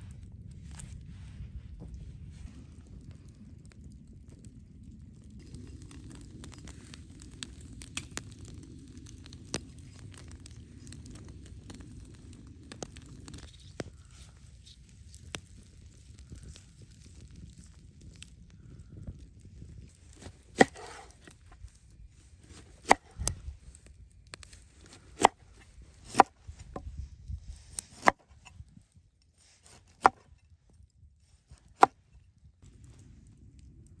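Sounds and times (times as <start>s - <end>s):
knife chopping on wooden board: 20.6s - 21.1s.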